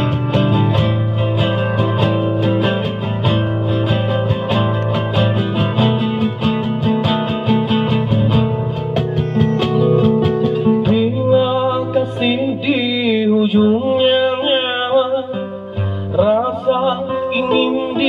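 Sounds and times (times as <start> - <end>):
acoustic guitar picked notes: 0.0 - 18.0
person singing: 10.5 - 18.0.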